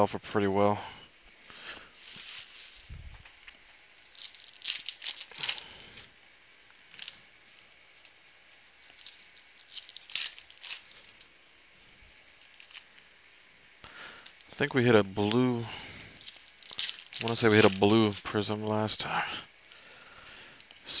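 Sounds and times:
foil wrapper crinkling and tearing: 2.0 - 6.1, 6.7 - 11.3, 12.4 - 13.1, 14.2 - 18.4.

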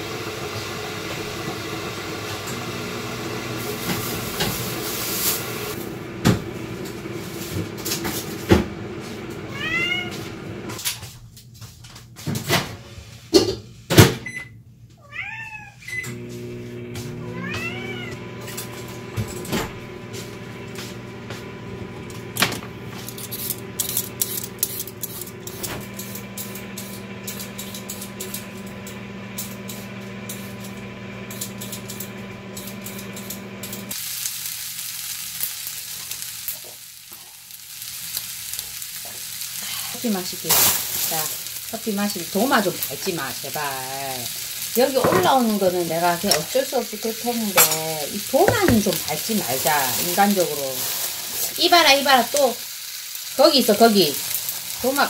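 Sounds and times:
cat meowing: 9.5 - 10.2, 15.0 - 16.0, 17.2 - 18.3.

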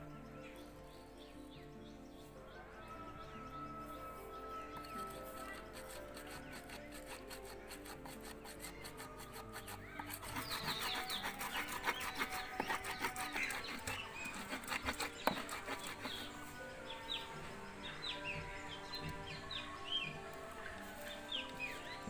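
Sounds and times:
background music: 0.0 - 22.0
birds chirping: 0.0 - 22.0
stone scraping on grinding stone: 4.7 - 17.3.

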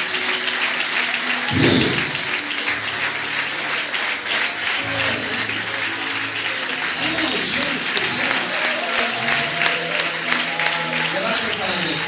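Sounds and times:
congregation clapping: 0.0 - 12.0
low thump: 1.5 - 2.3.

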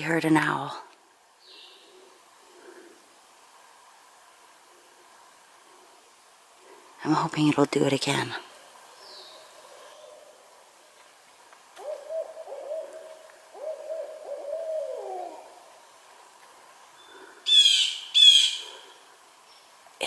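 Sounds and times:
high bird calls: 11.8 - 15.5, 17.0 - 18.9
owl hooting: 11.8 - 15.9, 17.0 - 19.1.

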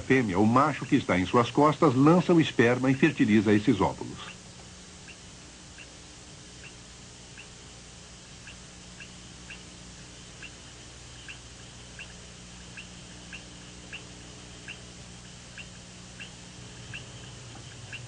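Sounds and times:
low hum and hiss: 0.0 - 18.0
small animal chirping: 5.0 - 7.6, 8.2 - 18.0.

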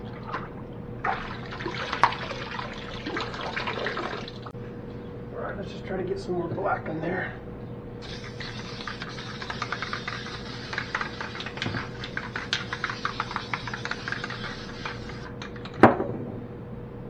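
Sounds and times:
aerosol spray can hissing: 8.0 - 15.4.

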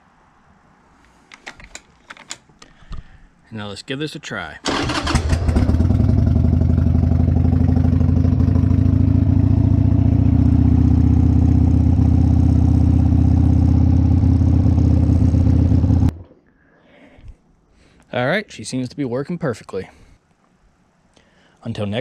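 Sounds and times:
motorcycle engine starting and idling: 4.6 - 16.2.

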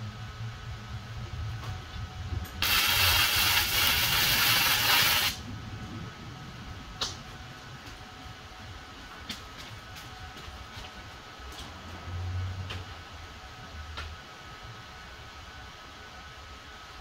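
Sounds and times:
arc welding crackling hiss: 2.4 - 5.4.

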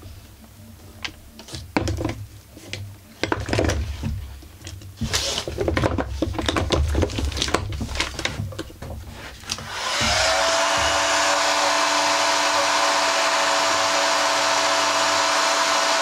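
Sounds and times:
heat gun blowing: 9.6 - 16.0.

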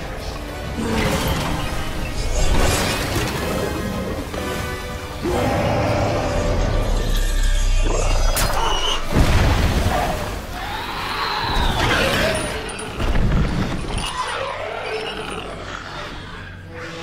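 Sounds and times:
monster screeching roar: 5.2 - 9.0.

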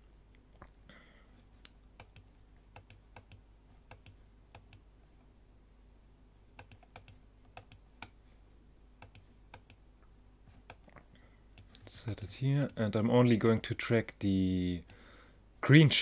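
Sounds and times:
low steady hum: 0.0 - 16.0
keyboard and mouse clicks: 1.6 - 4.9, 6.5 - 8.2, 9.0 - 9.8, 10.5 - 11.0, 11.6 - 12.8.

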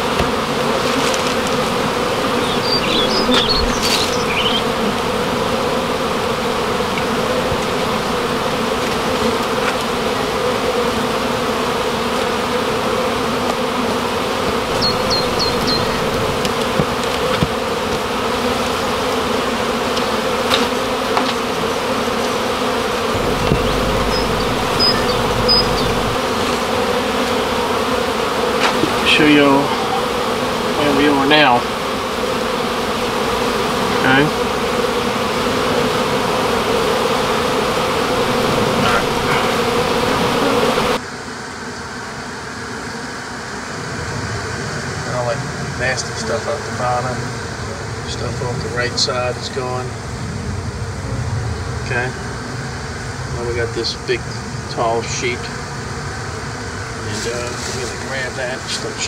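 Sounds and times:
bees buzzing: 0.0 - 43.6.

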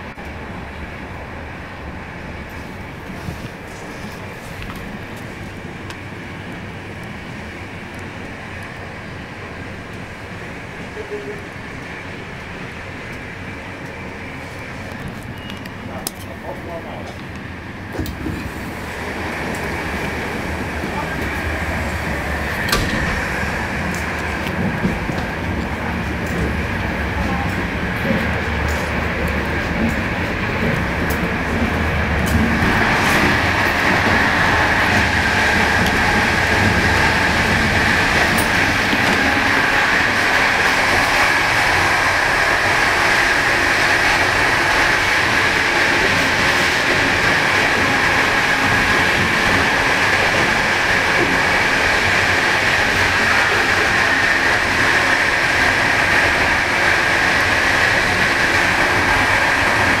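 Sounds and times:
train wheels on rail: 0.0 - 60.0.

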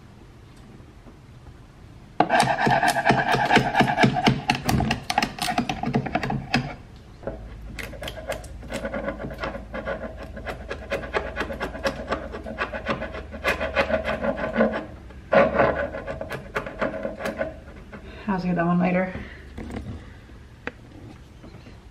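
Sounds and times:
chisel scraping paint off wood: 2.2 - 6.8, 7.8 - 18.1.

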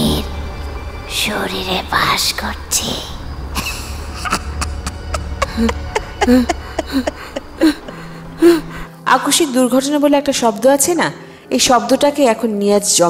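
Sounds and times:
low drone: 0.0 - 10.0.

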